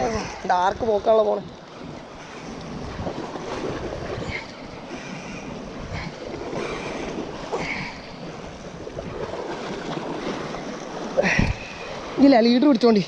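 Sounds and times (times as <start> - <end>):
sea waves: 0.0 - 13.0
wind buffeting microphone: 0.0 - 13.0.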